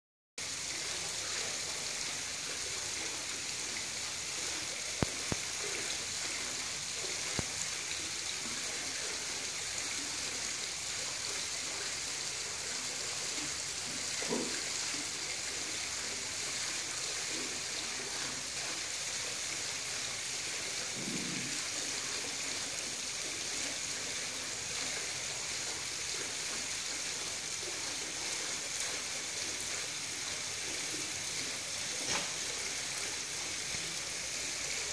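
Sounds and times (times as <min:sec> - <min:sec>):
high-pitched outdoor hiss: 0:25.7 - 0:34.9.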